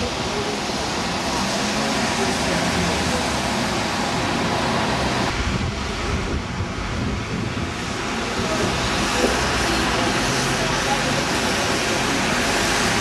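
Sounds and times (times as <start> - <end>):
street traffic: 0.0 - 13.0
wind on microphone: 4.2 - 10.6.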